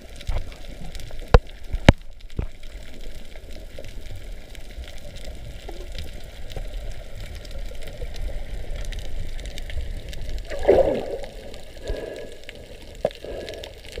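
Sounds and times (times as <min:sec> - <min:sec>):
muffled underwater rumble: 0:00.0 - 0:14.0
water gurgle: 0:00.0 - 0:14.0.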